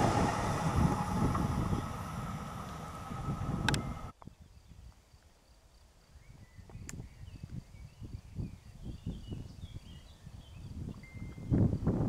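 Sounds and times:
wind gusting on microphone: 0.0 - 5.0, 6.1 - 12.0
faint insect trill: 3.7 - 11.9.

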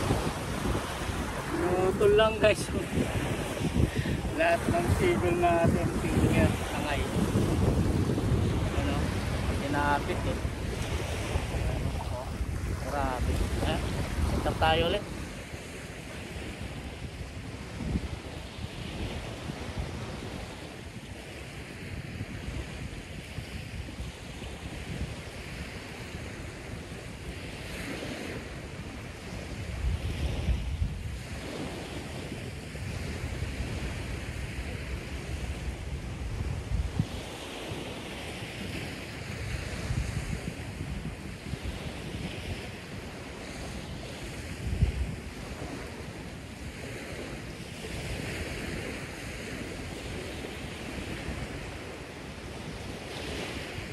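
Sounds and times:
wind buffeting microphone: 0.0 - 53.9.

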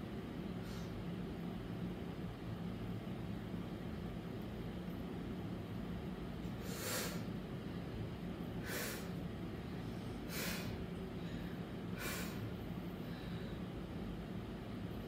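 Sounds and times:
steady low hum: 0.0 - 15.0
forceful breaths: 8.6 - 13.8.

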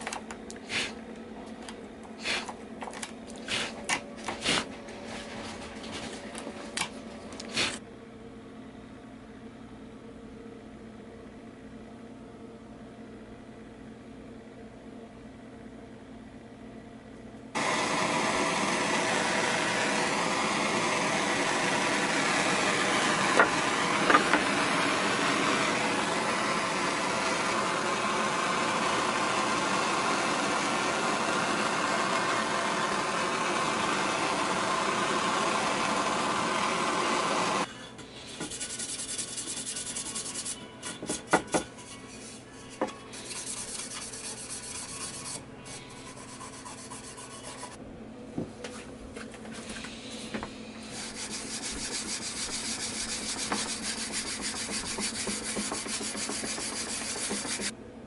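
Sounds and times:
gas blowtorch running: 0.0 - 1.0, 7.4 - 7.8, 17.6 - 37.7, 49.7 - 57.7
rubbing on charred wood: 50.9 - 57.7.

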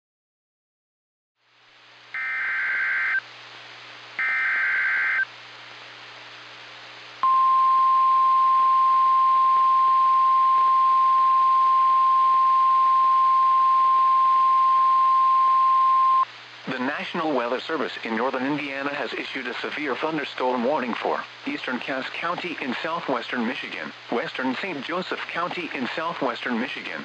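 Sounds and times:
warning alarm tone: 2.2 - 3.2, 4.2 - 5.3
data bursts: 4.2 - 5.3
radio hiss: 15.8 - 27.0.

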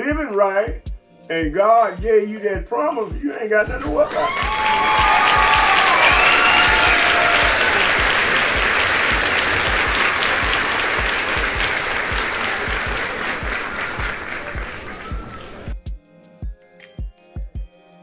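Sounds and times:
crowd applauding: 3.6 - 15.8.

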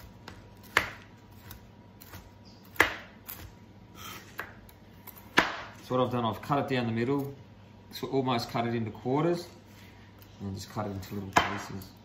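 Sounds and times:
knife chopping on plastic board: 0.0 - 4.7, 5.3 - 5.8, 11.3 - 11.8.

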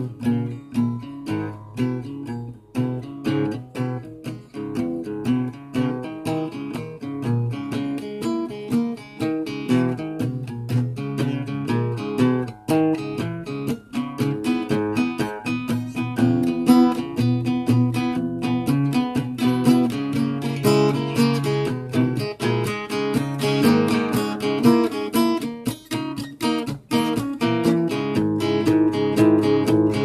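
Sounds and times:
solo guitar playing: 0.0 - 30.0.

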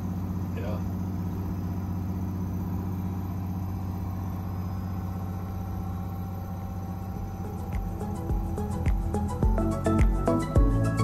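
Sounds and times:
boat diesel engine droning: 0.0 - 11.0.

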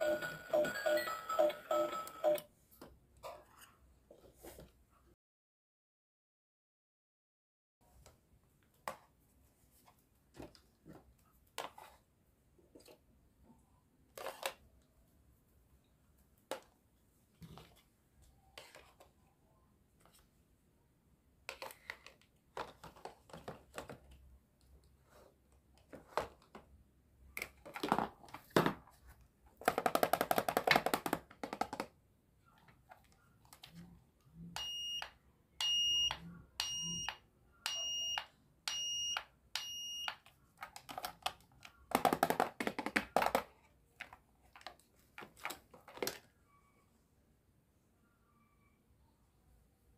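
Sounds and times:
high electronic toy beeps: 0.0 - 2.4, 34.6 - 40.2.

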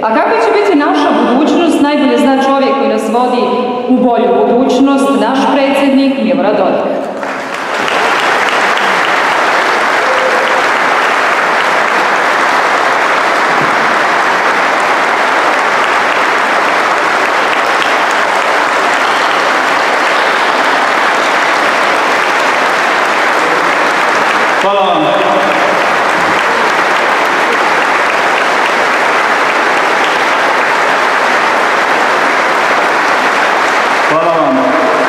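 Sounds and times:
large audience applauding: 7.1 - 35.0.

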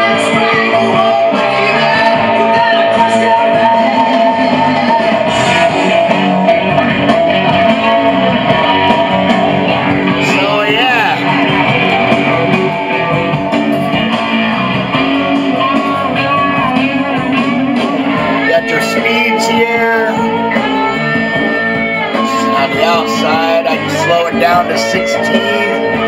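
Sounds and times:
song with guitar and vocals: 0.0 - 26.0.

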